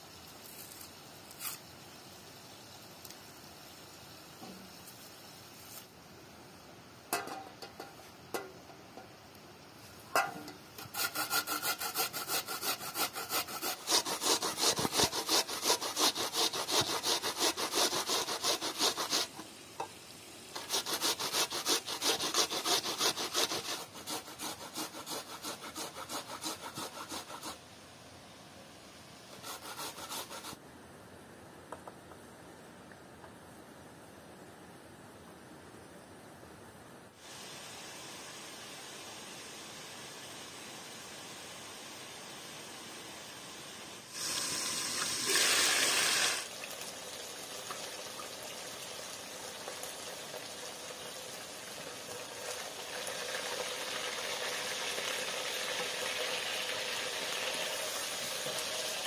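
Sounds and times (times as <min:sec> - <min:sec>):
onion grating on metal grater: 0:10.8 - 0:19.4, 0:20.6 - 0:27.6, 0:29.4 - 0:30.6.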